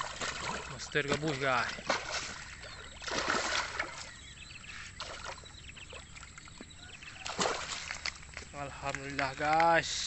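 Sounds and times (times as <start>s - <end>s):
loud splash: 0.0s - 0.9s, 1.7s - 4.0s, 7.2s - 8.0s
fish thrashing in water: 0.0s - 9.6s.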